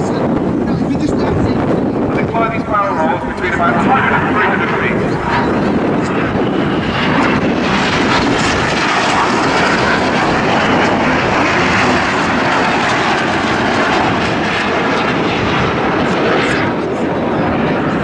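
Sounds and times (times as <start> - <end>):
jets passing overhead: 0.0 - 18.0.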